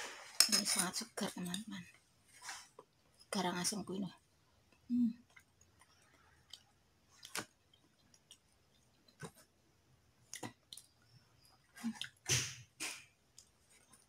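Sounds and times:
person chewing food: 0:04.7 - 0:14.0.

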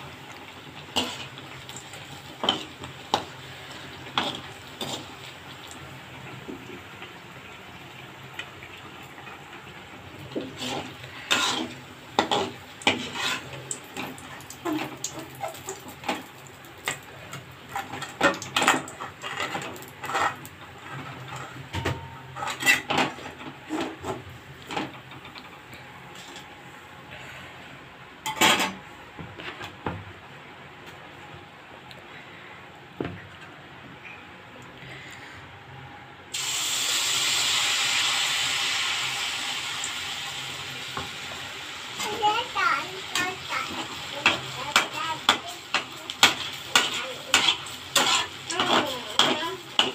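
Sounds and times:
batter sizzling in hot oil: 0:00.0 - 0:25.0, 0:36.3 - 0:49.9.

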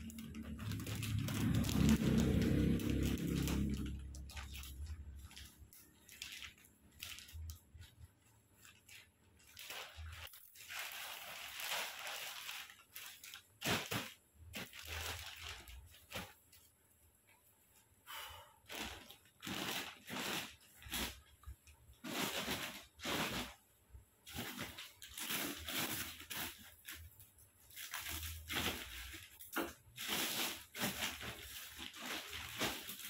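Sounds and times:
plastic wrapping rustling and crinkling: 0:00.0 - 0:18.0, 0:18.6 - 0:33.0.

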